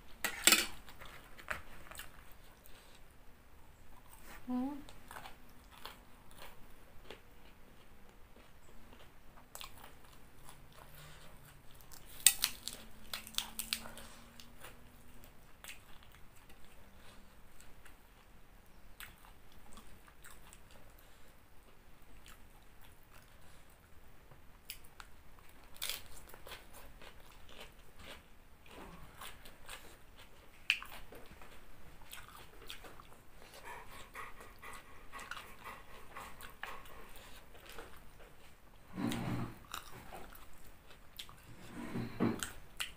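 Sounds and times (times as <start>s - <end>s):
person chewing and crunching: 4.9s - 18.3s, 19.0s - 21.3s, 24.6s - 38.6s, 39.6s - 41.5s.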